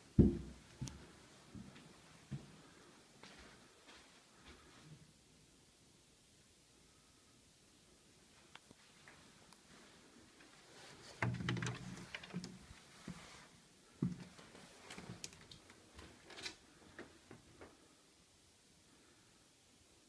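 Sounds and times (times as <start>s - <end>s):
door knocks and thumps: 0.2s - 0.6s.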